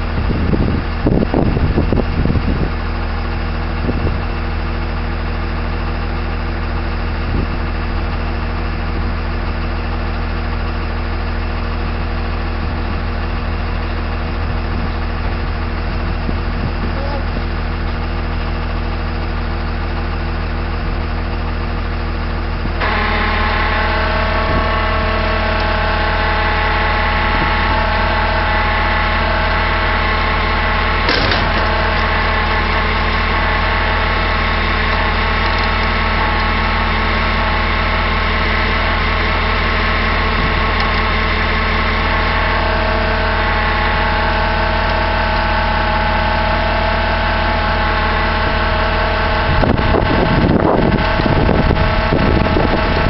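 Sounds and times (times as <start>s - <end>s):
truck engine running: 0.0s - 53.0s
metal clunk: 31.0s - 32.2s.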